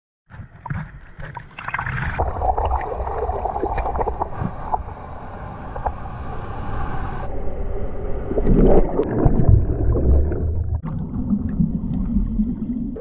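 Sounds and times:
water sloshing at microphone: 0.3 - 6.5
breaking surf rumble: 2.2 - 10.8.

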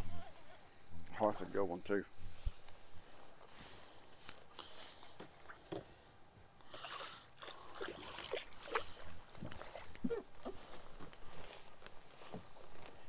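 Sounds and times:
fish splashing and thrashing in water: 6.8 - 10.0.

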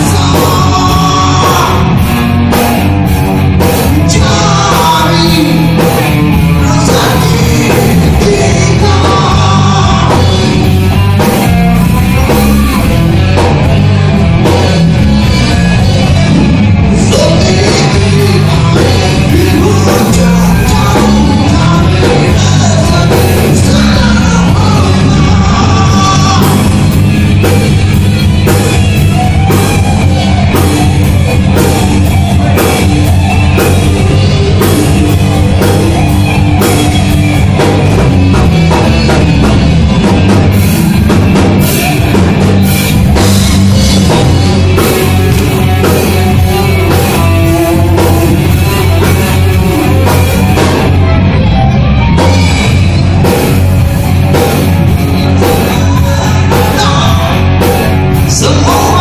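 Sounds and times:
drum kit beat: 0.0 - 59.0
electric guitars: 0.0 - 59.0.

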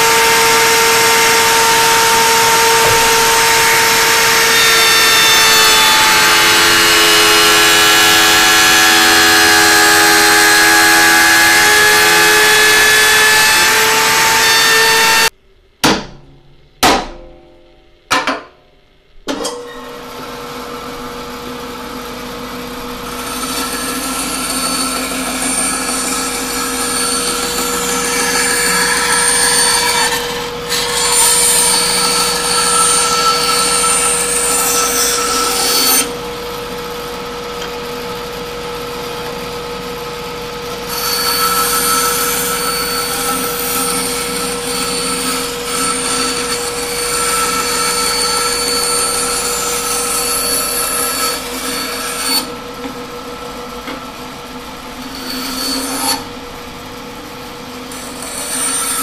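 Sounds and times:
bandsaw cutting wood: 0.0 - 15.3, 21.9 - 36.7, 40.6 - 54.2, 54.9 - 56.4, 57.8 - 59.0
router cutting wood: 0.0 - 15.3, 20.0 - 59.0
sharp knocks: 2.4 - 4.0, 15.8 - 18.6.

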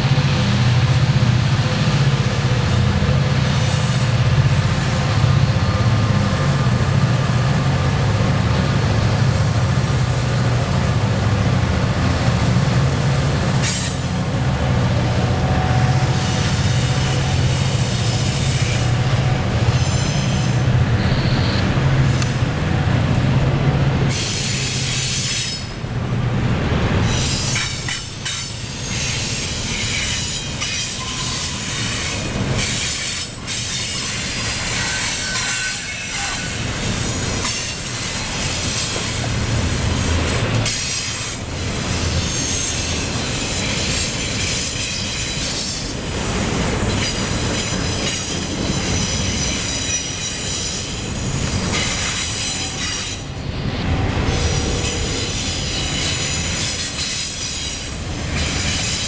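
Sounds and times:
steel wheels rumbling on rail: 0.0 - 59.0
high-pitched wheel squeal: 19.6 - 21.7.

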